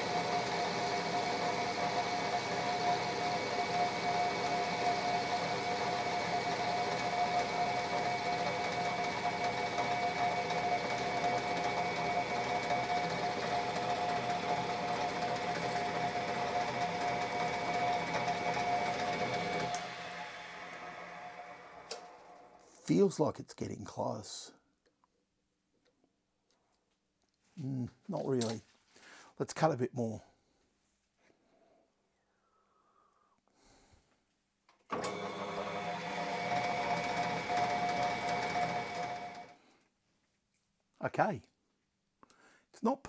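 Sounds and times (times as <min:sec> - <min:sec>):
metal lathe whining: 0:00.0 - 0:22.6, 0:34.9 - 0:39.6.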